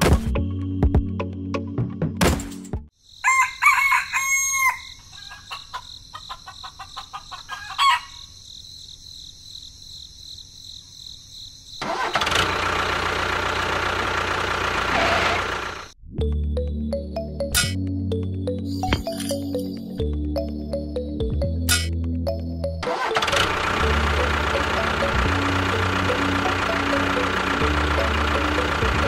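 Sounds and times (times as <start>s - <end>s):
rooster crowing: 3.2s - 8.3s.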